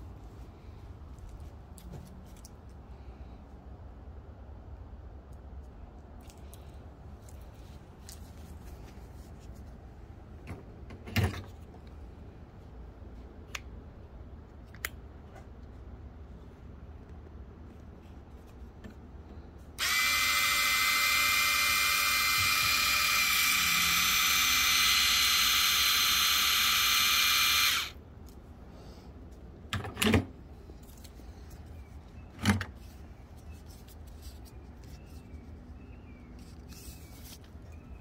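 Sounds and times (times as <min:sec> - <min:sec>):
electric pump whining: 0:19.8 - 0:28.0.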